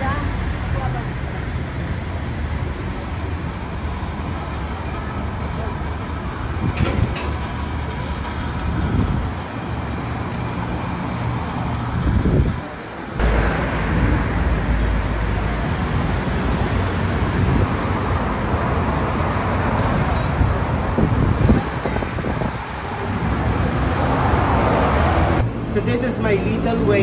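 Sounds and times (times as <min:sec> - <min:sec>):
traffic on busy road: 0:00.0 - 0:27.0
heavy low rumble: 0:13.2 - 0:16.6.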